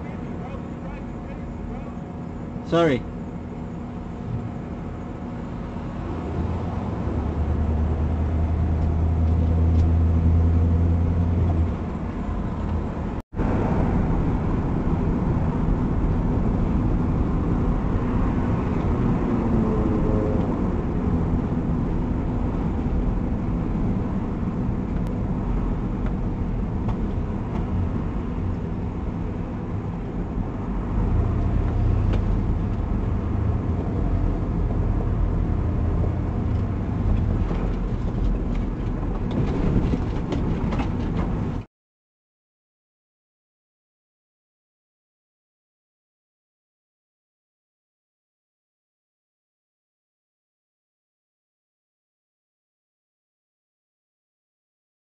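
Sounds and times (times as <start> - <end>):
car engine and road noise: 0.0 - 41.7.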